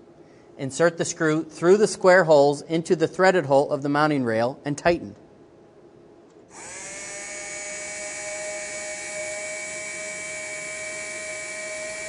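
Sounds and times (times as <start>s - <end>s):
electric screwdriver whining: 6.5s - 12.0s.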